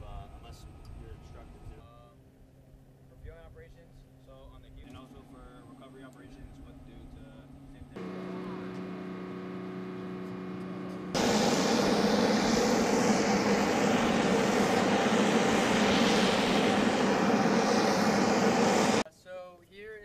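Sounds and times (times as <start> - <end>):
aircraft engines running: 4.8 - 19.0.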